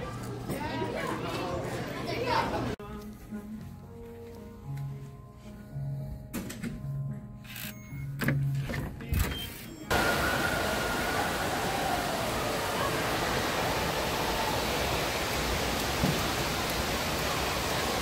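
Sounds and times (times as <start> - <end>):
water park rushing noise: 9.9 - 18.0.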